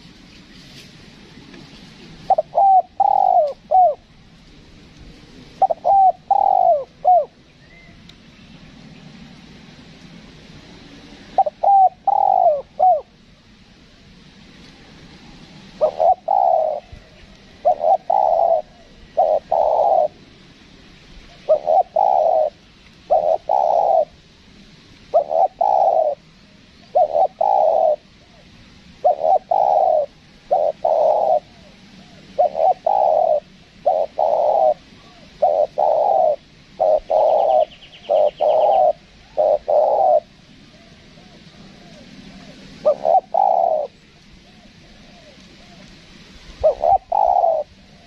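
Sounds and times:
dove cooing: 1.7s - 4.2s, 5.2s - 8.0s, 11.2s - 13.2s, 15.7s - 20.2s, 21.3s - 24.2s, 25.1s - 48.0s.

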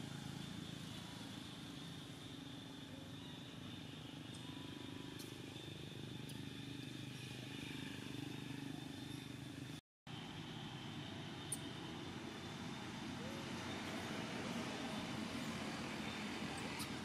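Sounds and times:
low outdoor background hum: 0.0s - 17.0s.

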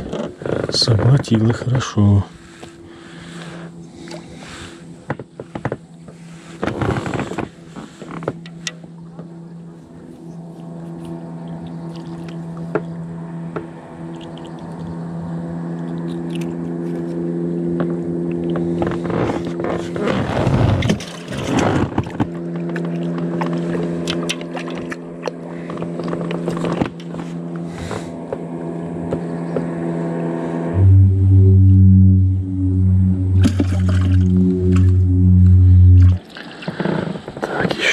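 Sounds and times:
steady engine drone: 0.0s - 37.9s
rush of rough noise: 18.6s - 24.2s, 29.8s - 37.9s.

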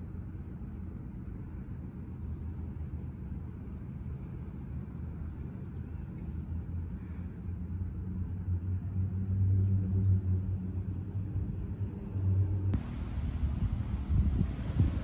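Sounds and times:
low engine rumble: 0.0s - 15.0s.

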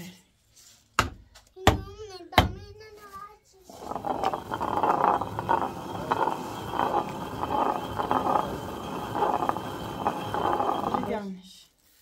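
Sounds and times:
millstone grinding grain: 3.7s - 11.3s.

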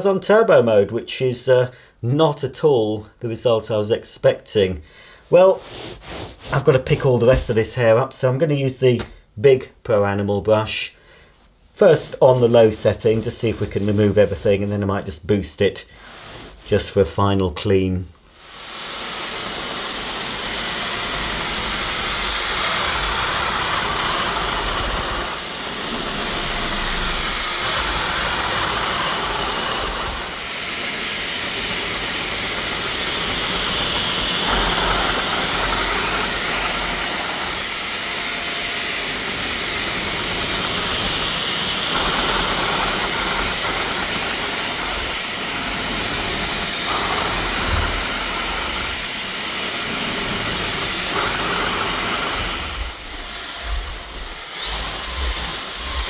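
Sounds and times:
vacuum cleaner motor whine: 18.4s - 56.0s.

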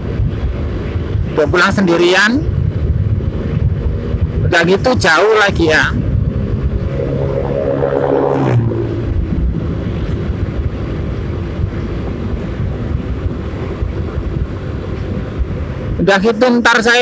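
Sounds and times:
wind buffeting microphone: 0.0s - 17.0s
motorcycle engine: 2.4s - 16.0s.

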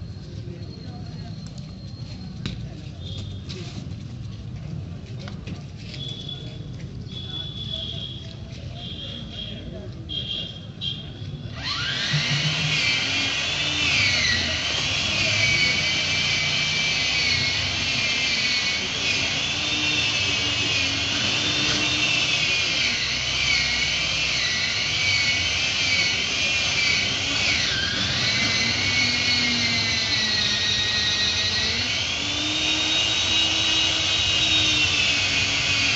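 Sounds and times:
chainsaw cutting at high revs: 11.5s - 35.9s.

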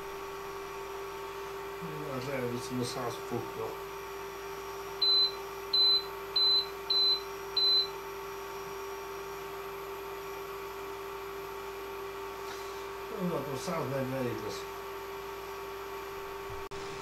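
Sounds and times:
cooker humming: 0.0s - 17.0s
short high control panel beeps: 5.0s - 7.9s.

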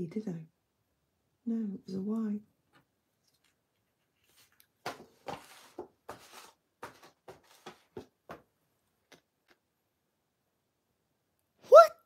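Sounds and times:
paper card sliding on wood: 4.2s - 8.1s.

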